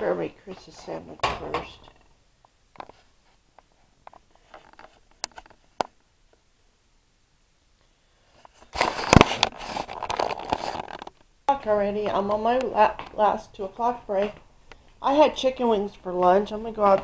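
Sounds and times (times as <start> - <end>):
rustling against microphone: 8.2 - 11.2.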